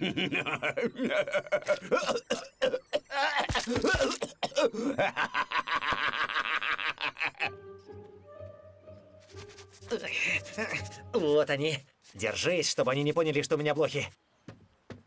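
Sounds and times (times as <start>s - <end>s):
cartoon character giggling: 4.8s - 7.6s.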